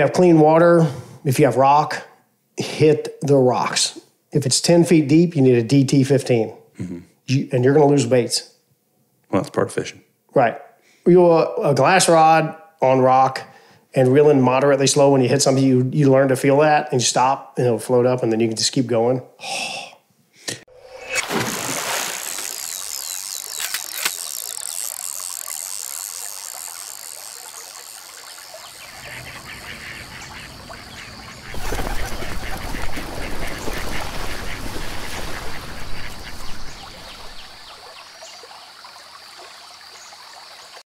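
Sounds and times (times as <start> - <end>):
ducks quacking: 28.6 - 37.6.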